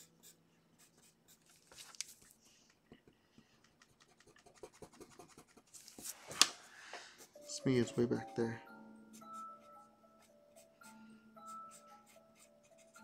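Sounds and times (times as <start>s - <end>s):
pencil scratching on paper: 0.0s - 2.2s, 3.8s - 6.4s, 7.1s - 8.5s, 9.1s - 13.0s.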